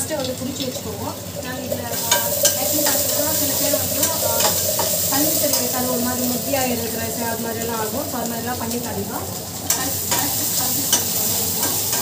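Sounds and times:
masala sizzling in oil: 0.0 - 12.0
spoon scraping and clinking pan: 2.0 - 5.8, 9.7 - 12.0.

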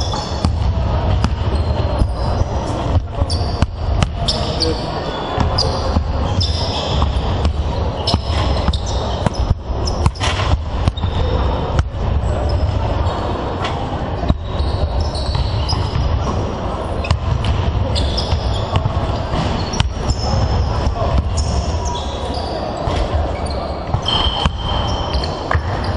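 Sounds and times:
sneaker squeaks: 0.0 - 25.9
basketballs bouncing on wooden floor: 0.1 - 4.5, 5.4 - 12.7, 14.3 - 16.2, 17.0 - 21.7.

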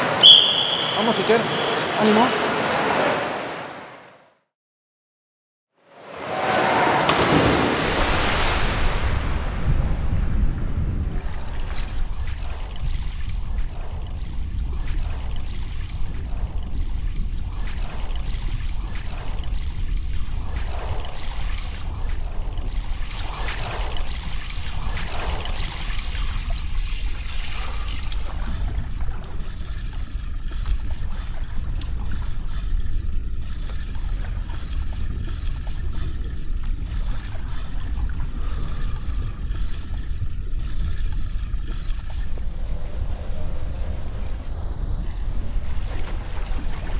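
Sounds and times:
swimming strokes splashing: 0.0 - 4.0, 6.0 - 9.8, 41.3 - 46.9
water movement: 0.0 - 4.2, 5.9 - 46.9
steady low rumble: 7.2 - 46.9.

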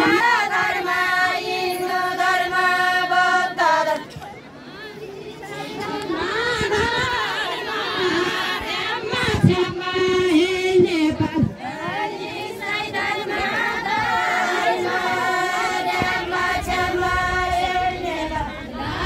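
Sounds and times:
women singing together: 0.0 - 19.0.

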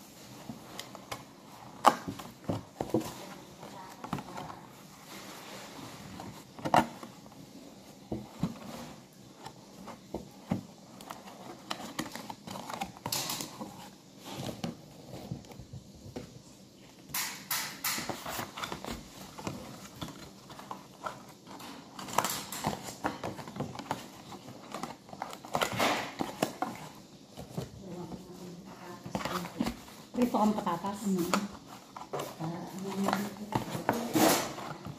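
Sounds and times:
paperboard rustling and creasing: 0.1 - 16.4, 18.0 - 34.9.

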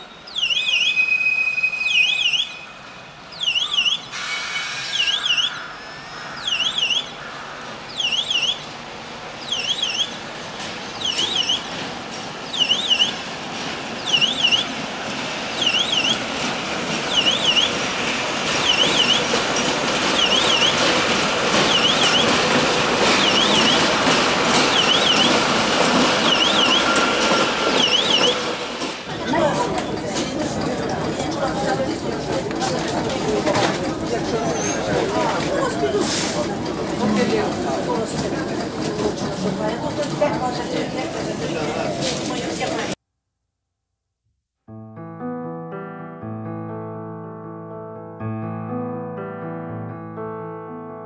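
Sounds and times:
diesel locomotive engine: 0.0 - 43.0
train wheels: 0.0 - 43.0
warbling electronic warning beep: 21.7 - 22.4, 23.2 - 23.9, 24.7 - 25.3.

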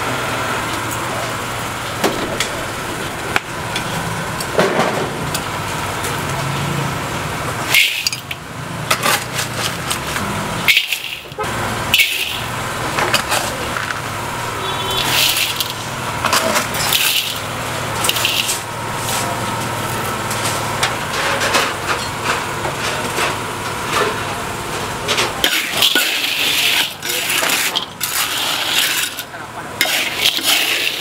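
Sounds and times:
metal bowl scooping salt: 7.7 - 8.3, 9.0 - 13.7, 14.7 - 19.3, 25.4 - 31.0
small engine running: 7.8 - 19.1
grit poured onto metal woks: 9.0 - 13.8, 14.7 - 20.2, 25.4 - 31.0.

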